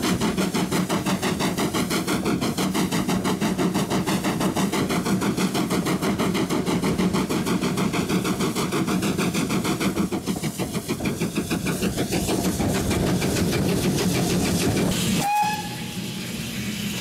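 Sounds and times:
steam locomotive exhaust beats: 0.0 - 17.0
locomotive whistle: 15.2 - 16.2.

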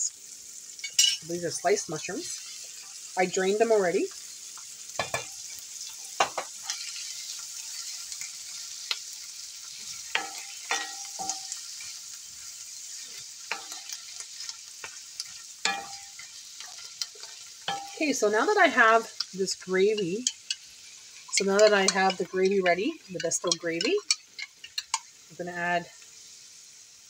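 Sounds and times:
food sizzling in skillet: 0.0 - 27.0
wooden spoon knocking and scraping: 15.7 - 18.0.

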